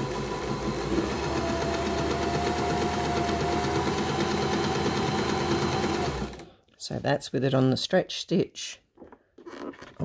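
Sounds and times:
sewing machine running: 0.0s - 6.5s.

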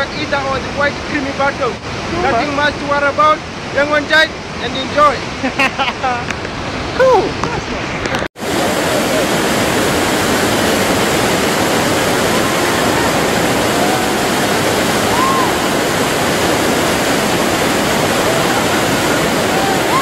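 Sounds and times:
river rapids rushing: 6.3s - 20.0s.

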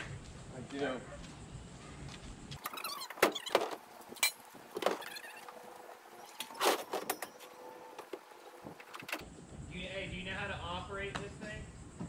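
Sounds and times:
knocks clanks and rattles of gear: 2.1s - 9.3s
short squeaks: 2.6s - 9.2s.

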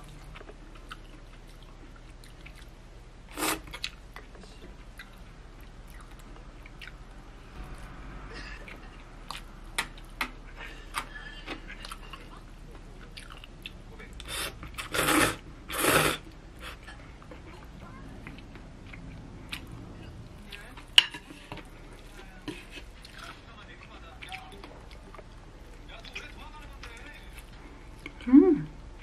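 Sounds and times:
chewing with clicks and smacks: 0.0s - 2.8s, 3.4s - 7.2s, 8.6s - 14.9s, 16.2s - 28.3s
noodles slurping: 14.2s - 16.9s.

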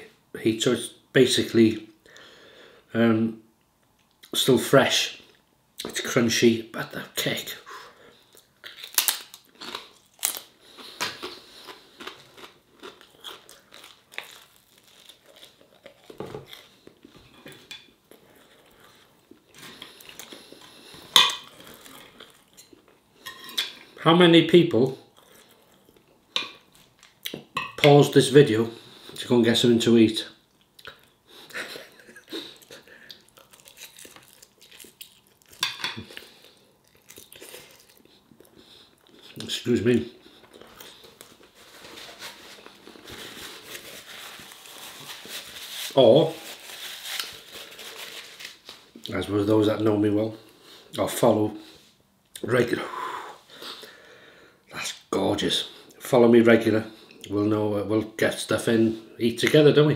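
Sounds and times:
person chewing crunchy food: 8.3s - 23.0s, 31.9s - 39.5s
chewing: 32.4s - 39.5s.

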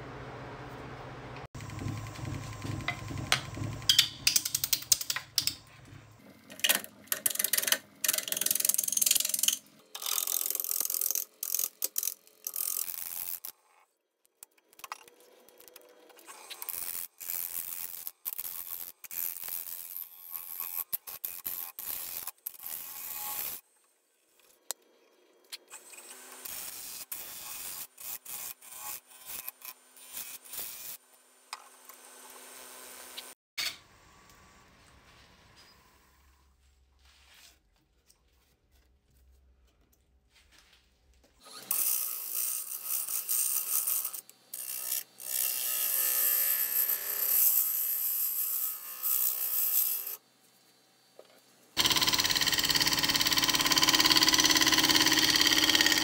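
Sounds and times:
lathe tool scraping: 51.8s - 56.0s.

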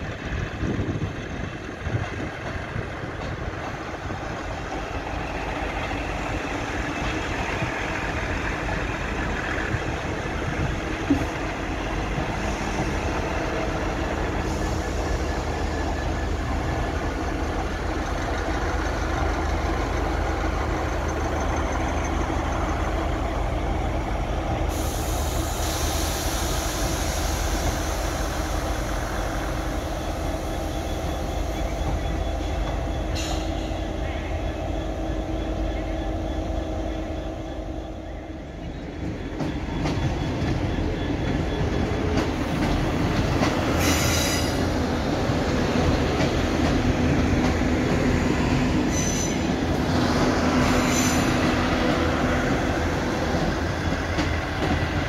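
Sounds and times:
diesel train engine rumble: 0.0s - 55.0s
hiss: 10.9s - 16.0s, 24.4s - 31.8s, 42.5s - 44.8s.

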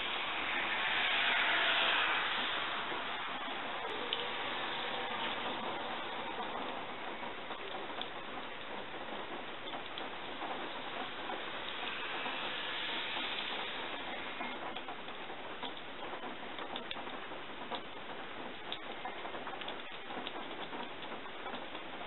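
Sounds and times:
steady hiss: 0.0s - 22.0s
faint ticks and clicks: 5.4s - 12.5s, 13.2s - 22.0s.

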